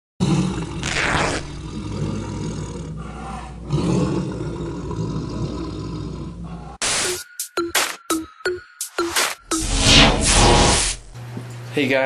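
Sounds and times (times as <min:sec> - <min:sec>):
tiger roaring: 0:00.2 - 0:06.8.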